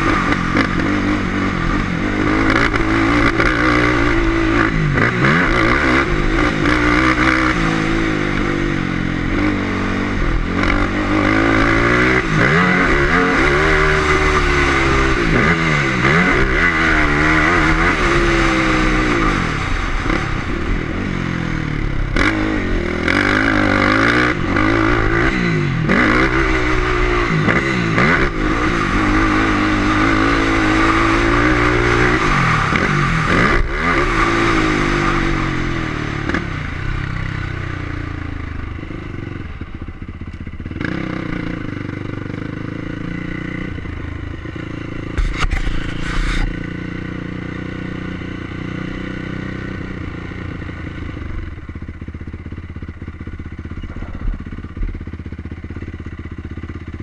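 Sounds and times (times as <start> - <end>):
motocross bike engine revving: 0.0 - 57.0
brief clatter: 45.2 - 46.5.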